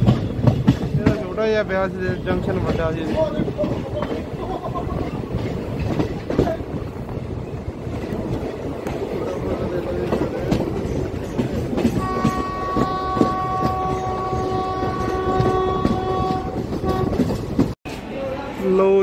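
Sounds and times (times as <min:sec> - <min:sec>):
train wheels clattering over rails: 0:00.0 - 0:18.0
locomotive horn long blast: 0:12.0 - 0:17.4.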